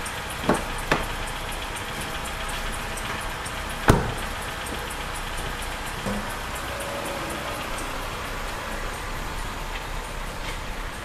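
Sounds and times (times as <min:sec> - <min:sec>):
car engine idling: 0:00.0 - 0:11.0
drive belt squeaking: 0:00.0 - 0:11.0
car door clicking open: 0:00.4 - 0:01.3, 0:01.9 - 0:06.3
car door shutting thump: 0:03.9 - 0:04.3.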